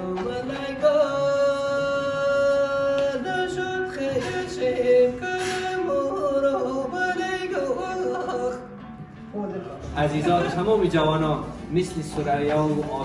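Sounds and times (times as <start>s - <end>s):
person singing slow melody: 0.0s - 9.3s.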